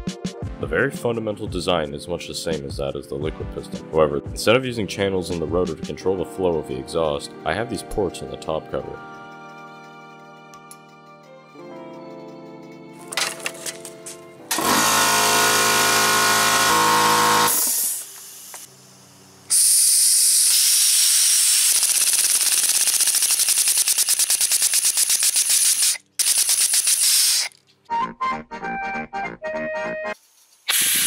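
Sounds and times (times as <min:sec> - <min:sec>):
compressed air hissing: 0:17.5 - 0:27.6, 0:30.6 - 0:31.0.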